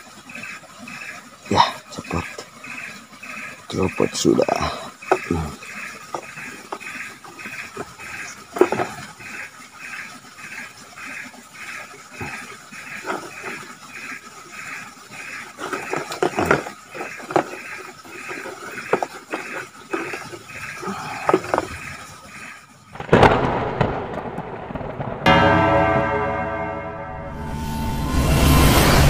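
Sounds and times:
insects chirping: 0.0 - 25.1
sharp knocks and rustles: 5.0 - 9.5, 12.2 - 14.2, 14.8 - 25.0.

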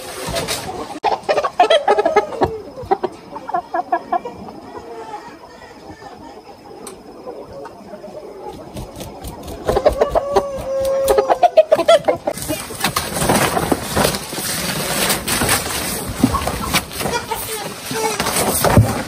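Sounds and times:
chickens clucking: 0.0 - 19.0
chicken drawn-out call: 0.7 - 12.7
loud rustling and crackling: 12.3 - 19.0.

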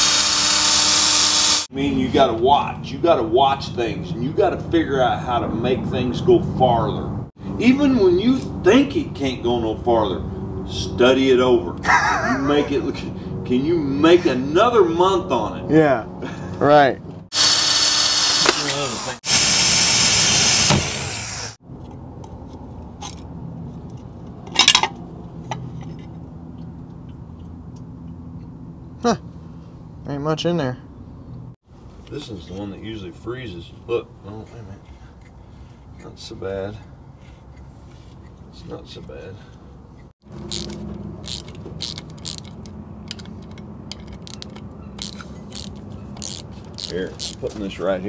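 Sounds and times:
cordless drill drilling metal: 0.0 - 1.7, 17.3 - 21.6, 40.4 - 42.7, 44.2 - 47.4
small metal clicks: 40.4 - 47.4.

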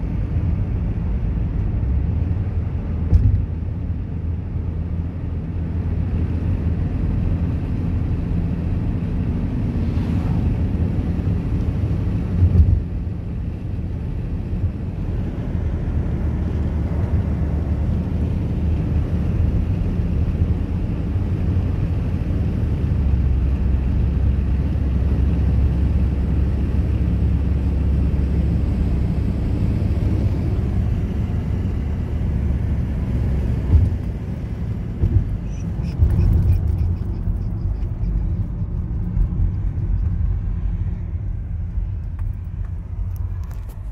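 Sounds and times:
car interior road rumble: 0.0 - 43.9
short thump: 3.1 - 3.4.

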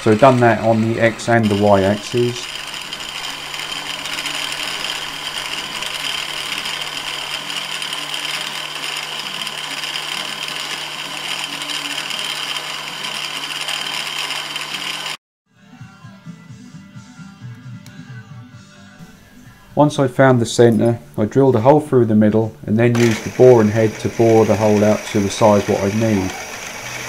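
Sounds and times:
milling machine humming: 0.0 - 15.2, 22.9 - 27.0.

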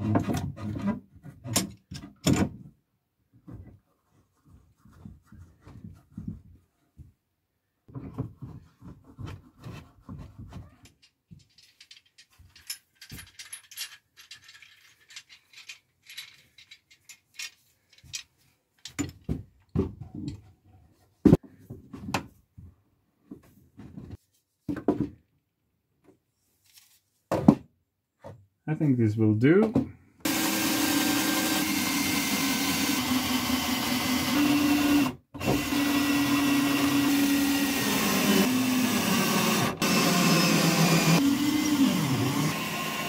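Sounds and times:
rustling: 26.3 - 27.3.

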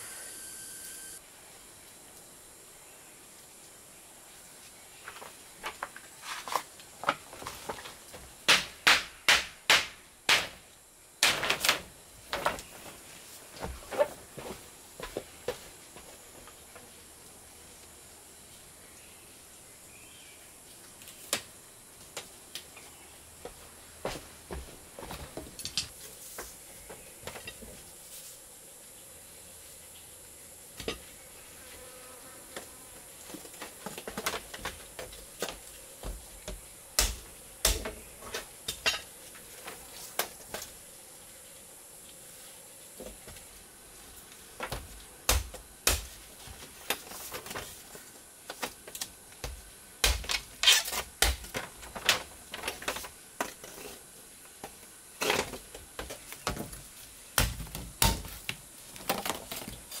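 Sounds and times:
high-pitched insect drone: 0.0 - 1.2.

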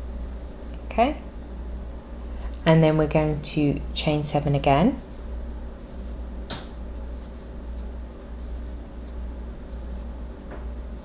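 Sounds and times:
steady low hum: 0.0 - 11.0
yarn rustling: 4.5 - 11.0.

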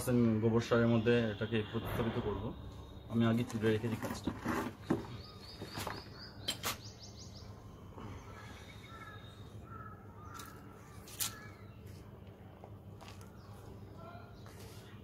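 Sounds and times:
bird calling: 1.7 - 12.0.

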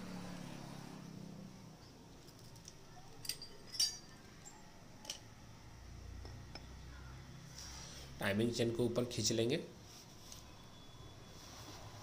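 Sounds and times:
metallic clinks: 2.2 - 5.3.

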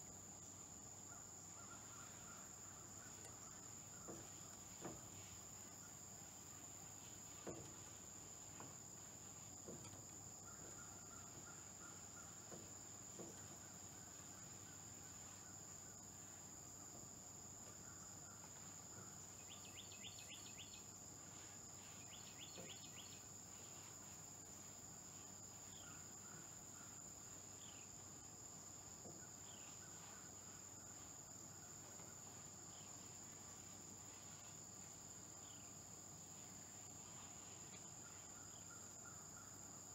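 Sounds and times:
high-pitched insect chorus: 0.0 - 39.9
faint knocks: 1.6 - 6.0, 7.2 - 14.8.

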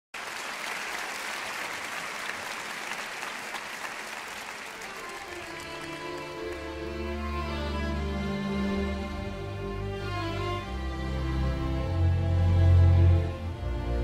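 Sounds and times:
audience applauding: 0.1 - 7.9.

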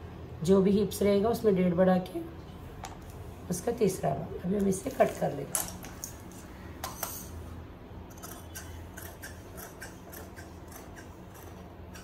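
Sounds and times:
shears snipping cloth: 8.2 - 12.0.

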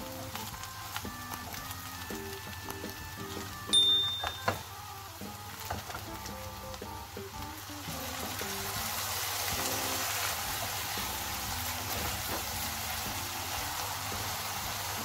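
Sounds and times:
frying pan sizzling and hissing: 0.0 - 15.0
water pouring into pan: 7.8 - 15.0.

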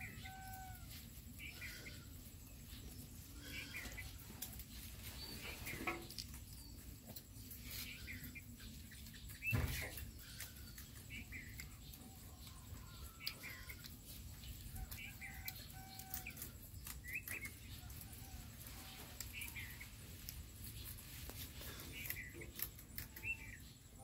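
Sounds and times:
rabbits chewing leafy greens: 0.0 - 24.0
birds chirping: 1.4 - 18.1, 18.8 - 24.0.

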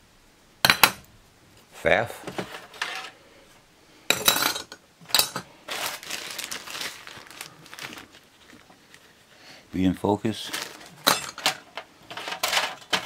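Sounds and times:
metal parts clinking in drawer: 4.1 - 5.5, 10.7 - 13.0
plastic bag crinkling: 5.3 - 9.2, 9.9 - 13.0.

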